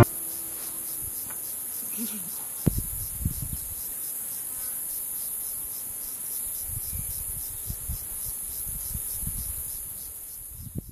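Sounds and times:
soft low thumps: 0.0s - 1.4s, 2.6s - 3.6s
insects chirring: 0.0s - 10.9s.

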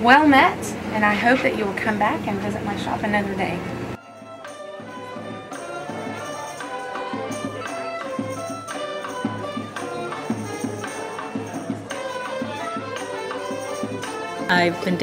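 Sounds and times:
drum beat: 5.9s - 15.0s.

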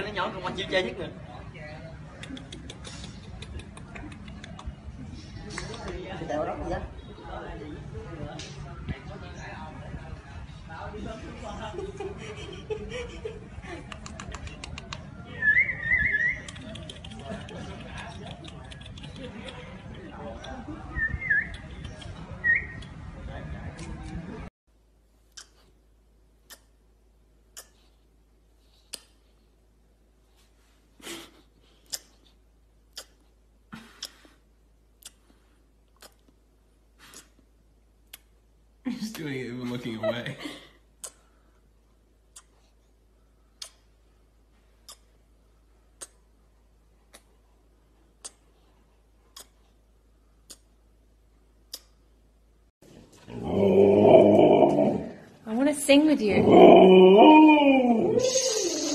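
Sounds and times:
puppy wet mouthing clicks: 2.2s - 4.8s, 13.9s - 15.1s, 16.4s - 19.8s, 43.6s - 43.9s, 44.8s - 45.2s, 46.0s - 46.2s, 47.1s - 47.3s, 49.3s - 49.6s, 50.4s - 50.7s, 51.7s - 52.0s
sharp faint clicks: 16.4s - 19.7s.

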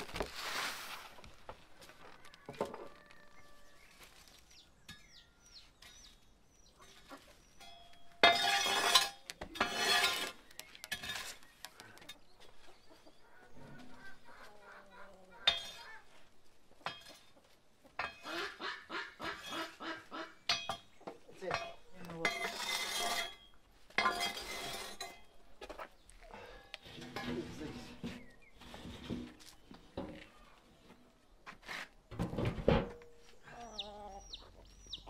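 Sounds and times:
chickens clucking: 1.0s - 8.2s, 9.3s - 22.3s, 32.5s - 35.0s.

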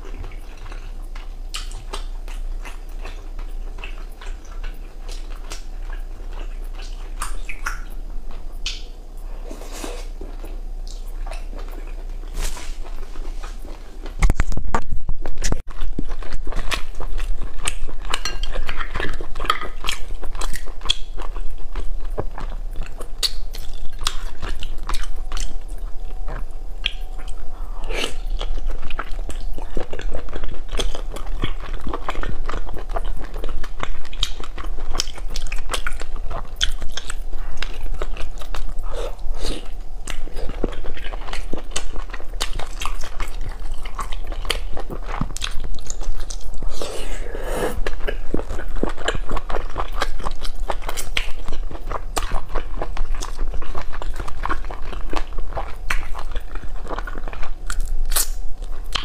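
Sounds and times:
wet chewing and biting: 15.3s - 59.0s.

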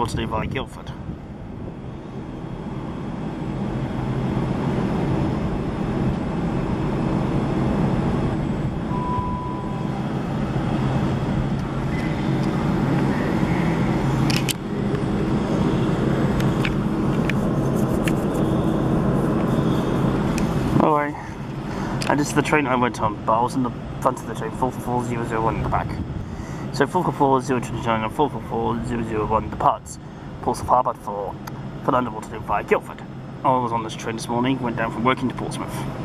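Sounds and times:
electric train pulling away: 5.7s - 17.1s.

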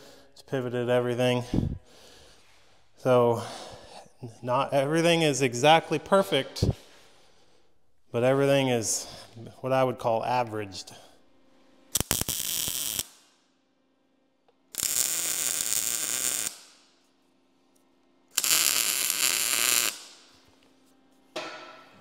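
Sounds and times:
arc welder bursts: 11.9s - 13.4s, 14.7s - 17.0s, 18.3s - 20.3s.

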